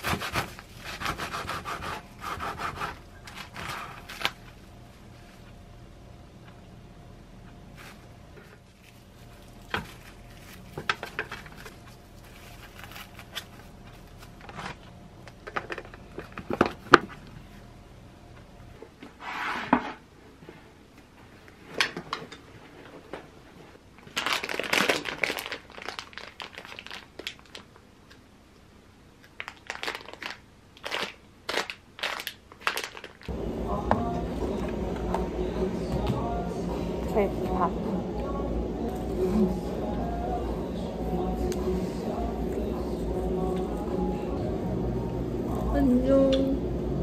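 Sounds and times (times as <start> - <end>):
plastic wrap crinkling: 3.2 - 5.5, 7.8 - 17.2, 24.0 - 27.8, 29.4 - 33.3
plastic packet crinkling: 8.7 - 16.9, 24.0 - 27.8, 29.3 - 33.3.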